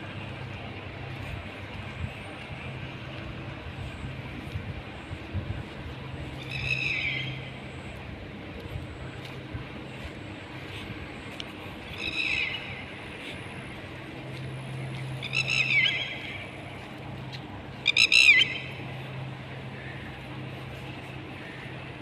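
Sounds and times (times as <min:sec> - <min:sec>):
steady low hum: 0:00.0 - 0:22.0
high-pitched animal calls: 0:17.8 - 0:18.8.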